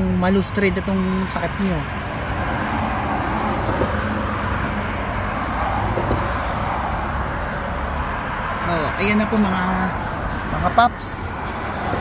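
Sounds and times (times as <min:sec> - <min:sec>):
road traffic rumble and hiss: 0:00.0 - 0:12.0.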